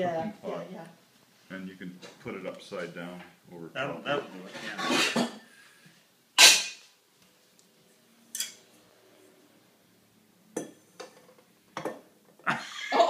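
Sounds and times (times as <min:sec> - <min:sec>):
metal cooking pot clanking: 0:06.4 - 0:06.8
light knocks of pot on countertop: 0:10.6 - 0:12.1.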